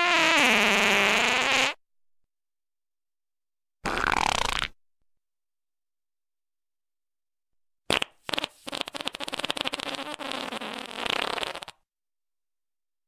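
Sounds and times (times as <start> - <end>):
fart sound effect: 0.0 - 1.8, 3.8 - 4.8, 7.9 - 11.8.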